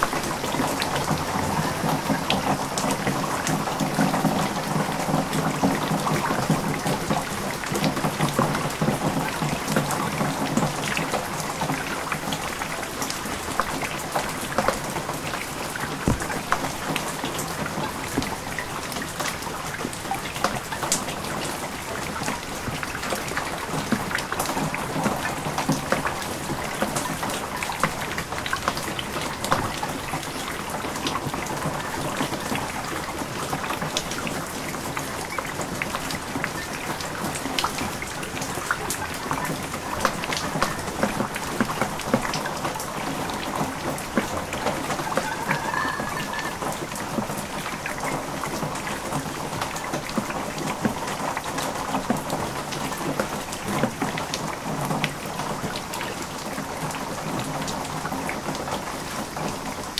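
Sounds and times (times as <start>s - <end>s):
raindrops tapping on objects: 0.0s - 59.9s
runoff water flowing: 0.0s - 59.9s.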